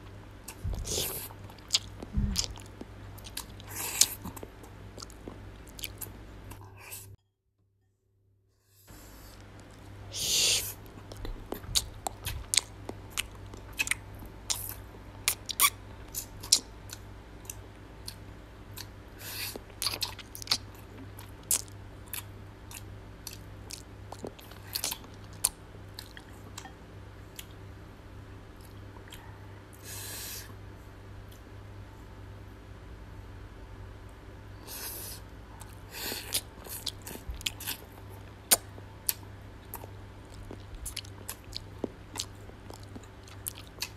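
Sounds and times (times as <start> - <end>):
steady low hum: 0.0 - 7.2, 8.6 - 43.9
wet chewing and lip-smacking: 0.4 - 6.6, 10.8 - 26.7, 35.6 - 43.9.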